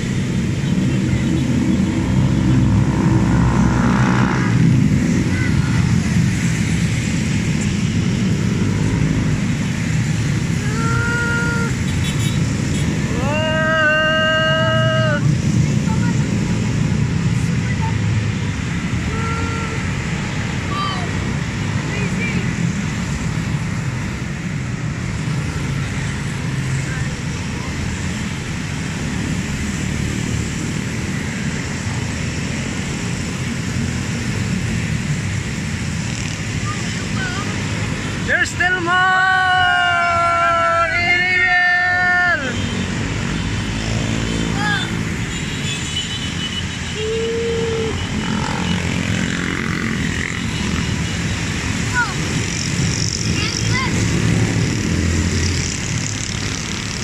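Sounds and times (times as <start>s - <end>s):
motorcycle engines droning: 0.0s - 45.7s, 46.3s - 57.0s
motorcycles and scooters riding past: 0.2s - 11.8s, 47.6s - 57.0s.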